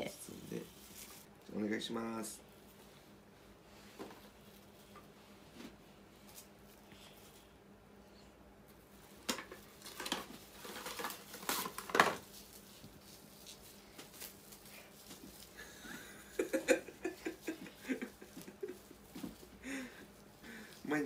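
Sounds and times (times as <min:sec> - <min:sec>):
cling wrap crinkling: 0:09.5 - 0:20.2.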